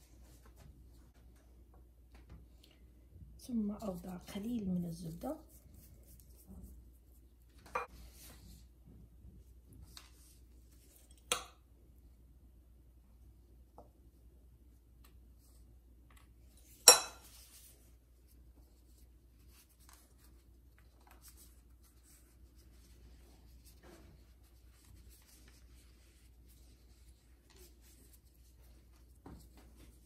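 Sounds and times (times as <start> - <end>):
pastry rustles and taps: 16.0 - 30.0.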